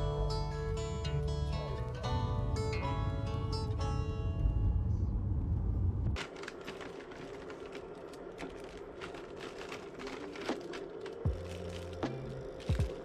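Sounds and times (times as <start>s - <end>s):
car road noise inside cabin: 0.0s - 13.0s
cellophane bag crinkling: 6.2s - 13.0s.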